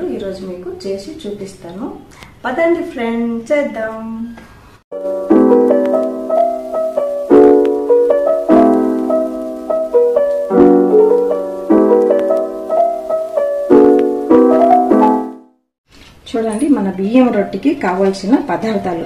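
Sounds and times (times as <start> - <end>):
keyboard chords and melody: 4.9 - 15.6.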